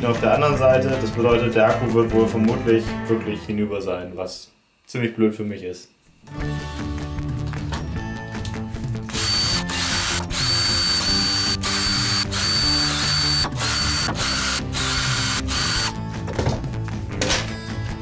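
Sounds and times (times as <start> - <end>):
cordless drill whining: 9.1 - 16.0.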